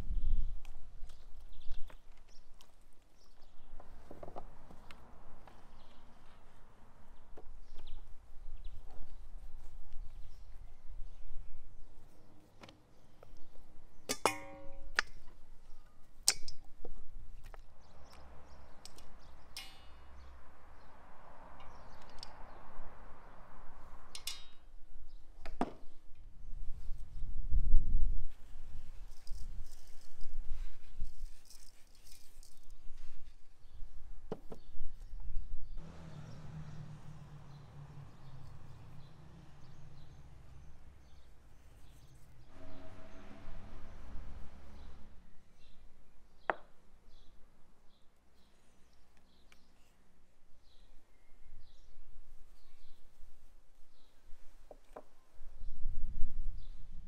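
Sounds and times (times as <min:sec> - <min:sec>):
low wind rumble: 0:00.0 - 0:01.9, 0:14.6 - 0:31.4, 0:32.5 - 0:46.2, 0:55.3 - 0:57.0.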